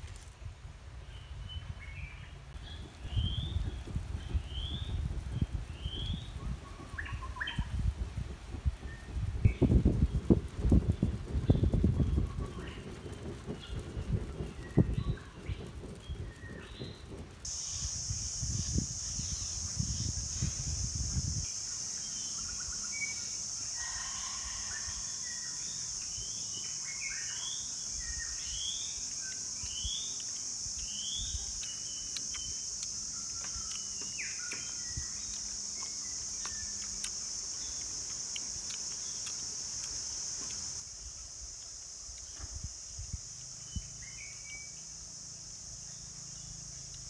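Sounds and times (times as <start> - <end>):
birds chirping: 1.1 - 7.9, 8.7 - 40.8
high-pitched insect drone: 14.6 - 47.0.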